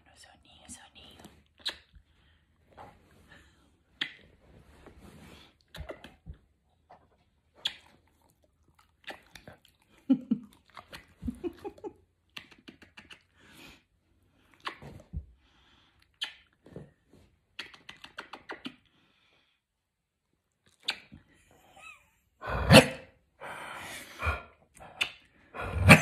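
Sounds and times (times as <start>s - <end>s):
kissing smacks: 1.6s - 2.0s, 4.0s - 4.3s, 5.7s - 6.2s, 7.6s - 8.0s, 9.0s - 9.4s, 12.3s - 13.4s, 14.5s - 15.1s, 16.1s - 16.6s, 17.5s - 18.9s, 20.7s - 21.3s, 24.8s - 25.3s.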